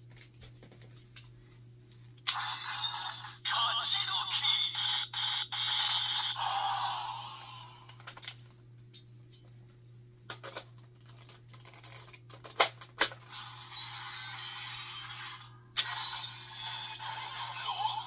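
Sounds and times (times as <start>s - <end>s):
electronic toy sound effect: 2.3s - 7.9s, 13.3s - 18.0s
toy blaster electronic standby sound: 2.3s - 7.9s, 13.2s - 18.0s
sharp plastic snaps: 11.8s - 13.2s.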